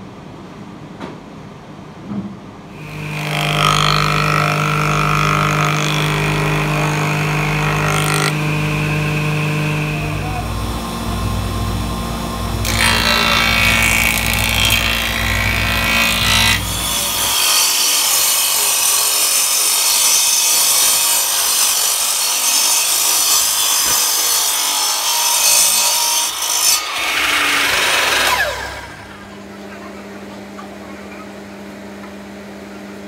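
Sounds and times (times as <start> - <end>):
miter saw cutting wood: 2.8 - 29.6
thickness planer humming: 2.8 - 33.0
saw motor winding down whine: 4.0 - 15.6, 26.9 - 29.4.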